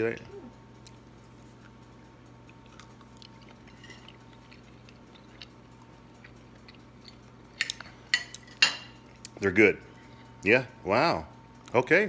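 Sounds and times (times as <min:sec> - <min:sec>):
steady low hum: 0:00.0 - 0:12.0
man chewing: 0:00.6 - 0:09.4.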